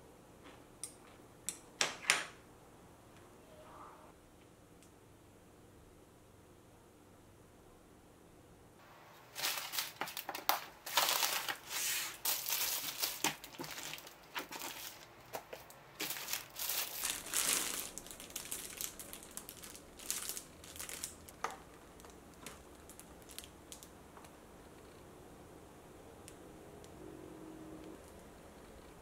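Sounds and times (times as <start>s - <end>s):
plastic bags crinkling: 9.2s - 23.9s.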